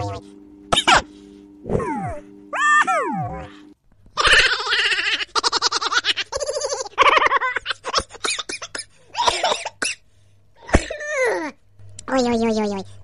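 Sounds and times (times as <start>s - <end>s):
person laughing high-pitched: 4.2s - 8.2s.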